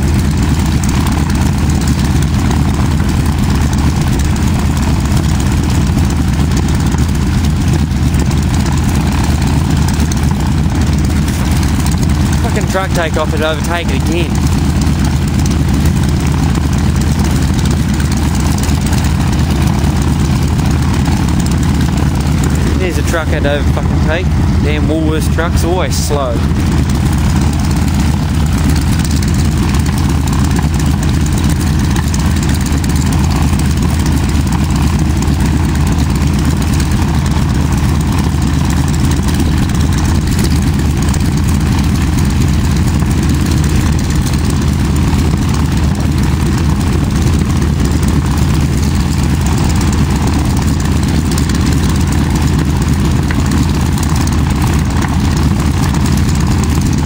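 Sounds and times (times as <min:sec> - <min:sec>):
airplane engine idling: 0:00.0 - 0:57.0.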